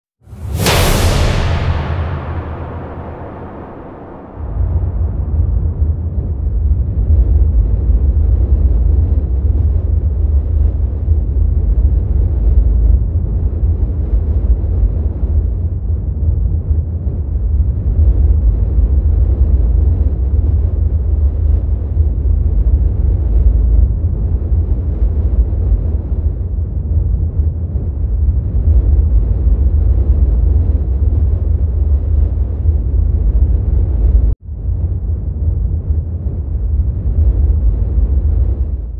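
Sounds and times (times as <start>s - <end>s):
deep rumbling drone: 0.2s - 38.9s.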